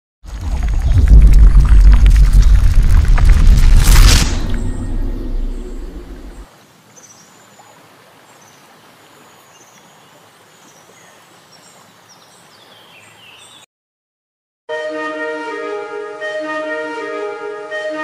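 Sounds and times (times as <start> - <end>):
low boom rumble: 0.4 - 6.4
flute music: 14.7 - 18.0.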